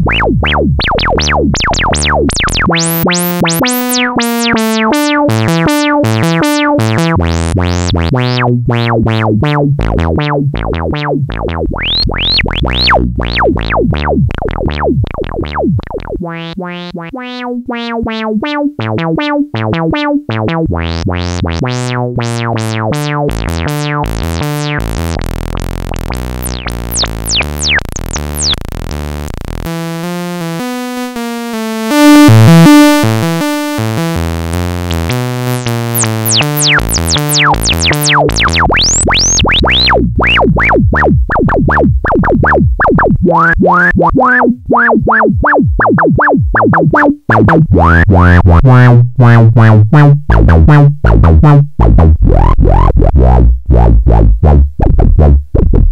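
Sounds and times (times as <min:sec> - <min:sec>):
filtered synthesizer line: 0:00.0 - 0:54.7.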